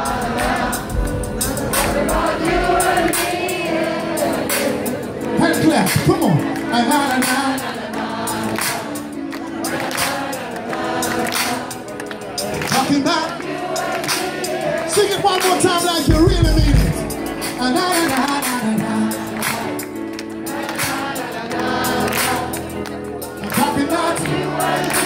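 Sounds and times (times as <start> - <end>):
live reggae band playing: 0.0 - 7.7, 13.8 - 25.0
many voices singing: 0.0 - 25.0.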